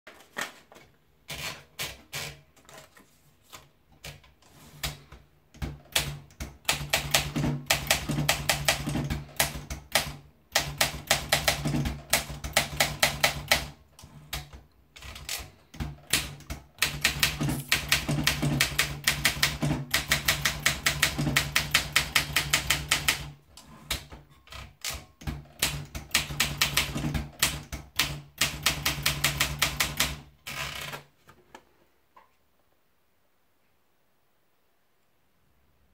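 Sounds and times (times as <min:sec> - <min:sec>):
typewriter keystrokes: 0:04.8 - 0:31.1
paper rolled into typewriter: 0:17.3 - 0:18.6.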